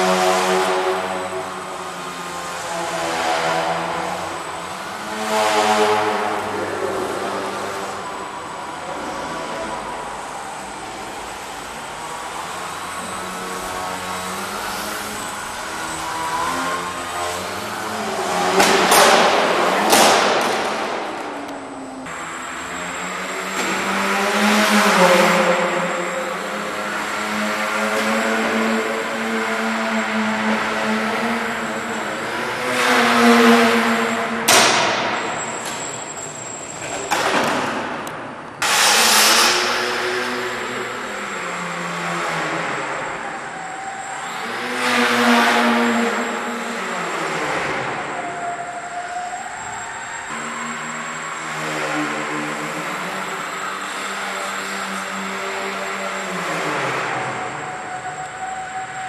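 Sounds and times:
model plane motor and propeller buzzing: 0:00.0 - 0:19.2, 0:22.2 - 0:37.4, 0:38.6 - 0:59.0
model plane motor whining: 0:06.0 - 0:18.4.

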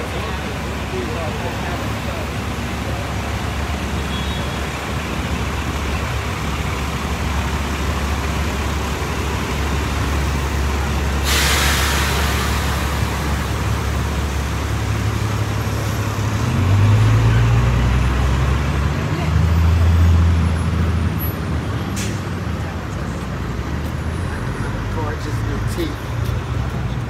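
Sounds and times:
heavy engine: 0:00.0 - 0:27.0
traffic rumble: 0:00.0 - 0:27.0
air brakes hissing: 0:11.1 - 0:13.3, 0:22.0 - 0:22.3.

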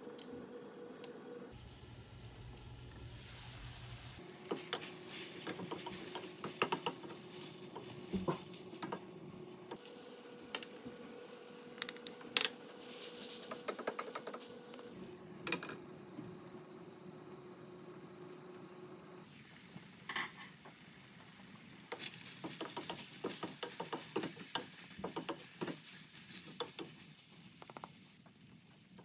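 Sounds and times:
food sizzling in a pan: 0:01.6 - 0:09.0, 0:19.2 - 0:29.0.

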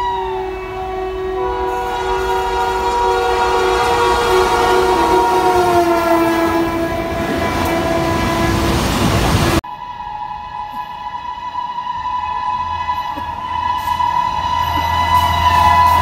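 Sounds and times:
locomotive horn blast: 0:00.0 - 0:16.0
rumble of passing train wagons: 0:00.0 - 0:16.0.

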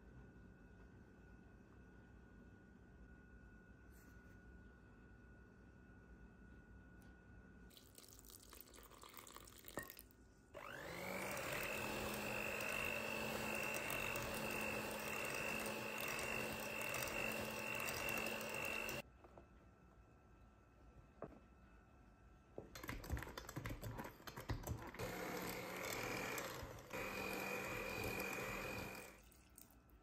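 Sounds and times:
electric hand mixer whining: 0:10.6 - 0:19.0, 0:24.9 - 0:29.2.

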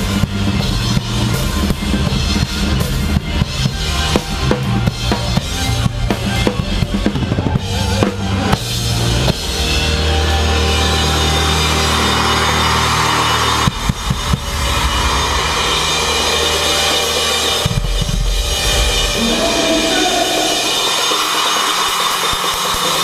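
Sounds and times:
rock band held chord: 0:00.0 - 0:23.0
crowd cheering and screaming: 0:06.4 - 0:23.0
drum kit hits: 0:13.6 - 0:23.0.

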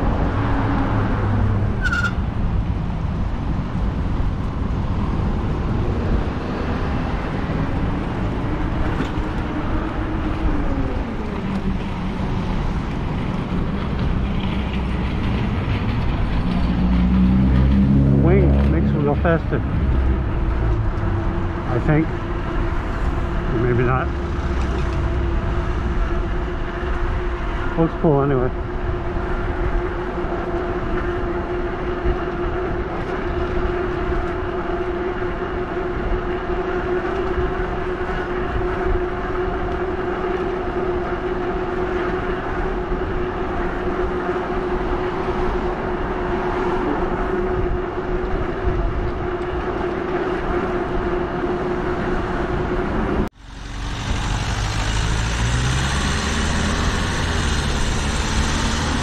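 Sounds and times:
wind and tyre noise: 0:00.0 - 0:59.0
electric motor whining: 0:53.8 - 0:59.0.

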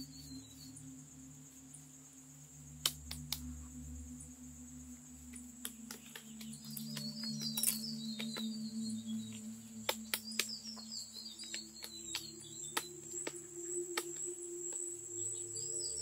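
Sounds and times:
high insect drone: 0:00.0 - 0:16.0
low steady hum: 0:00.0 - 0:16.0
sharp clicks: 0:02.8 - 0:03.5, 0:09.8 - 0:14.2.

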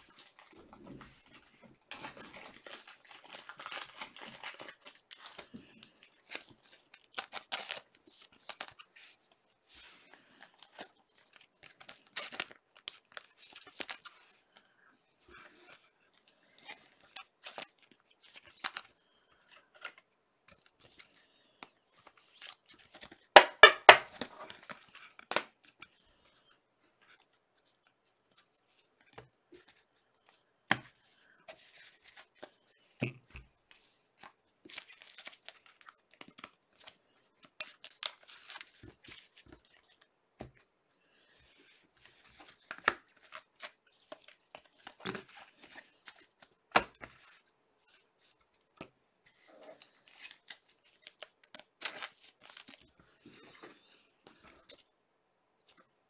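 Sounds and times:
cards rustling and sliding: 0:00.2 - 0:09.0, 0:27.2 - 0:32.8, 0:33.7 - 0:54.9.

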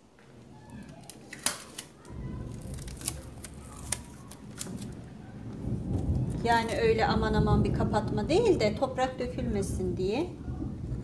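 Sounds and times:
packing tape clicks and crackles: 0:00.6 - 0:05.1.

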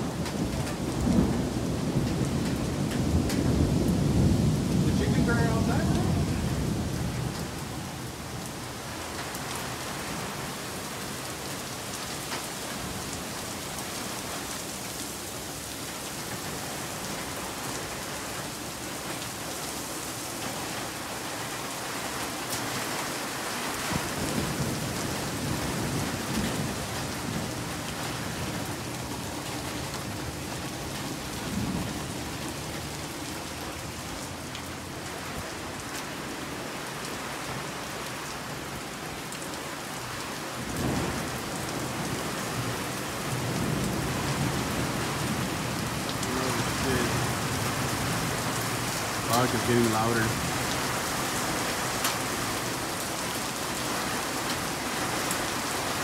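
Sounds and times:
thunder rumbling: 0:00.0 - 0:08.4
heavy rain pouring: 0:00.0 - 0:56.0.

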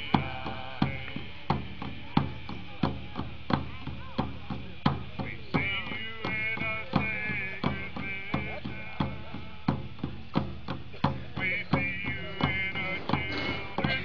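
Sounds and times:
hand drums beating: 0:00.0 - 0:14.0
voices singing: 0:00.0 - 0:14.0.

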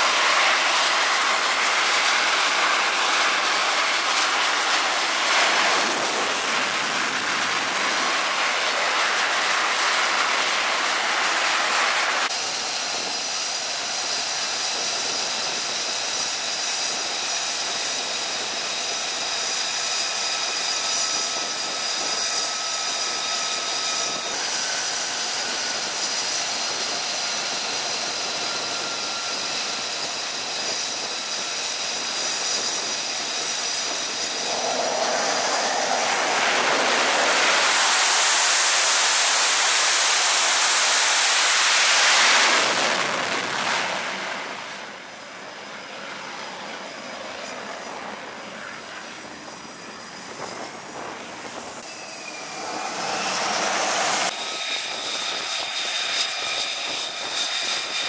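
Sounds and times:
jet engines roaring: 0:00.0 - 0:58.0
high whine: 0:28.9 - 0:45.2.

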